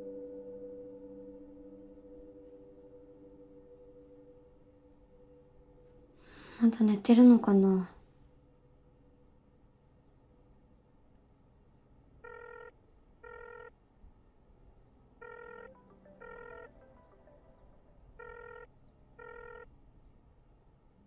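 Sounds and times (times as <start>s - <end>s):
telephone ringing double beeps: 12.2s - 13.7s, 15.2s - 17.4s, 18.2s - 19.6s.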